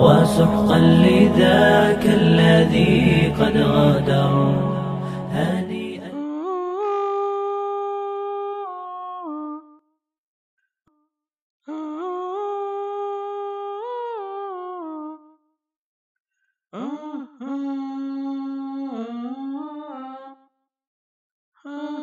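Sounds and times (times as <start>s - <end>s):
person humming: 0.0s - 9.8s, 11.7s - 15.3s, 16.8s - 20.1s.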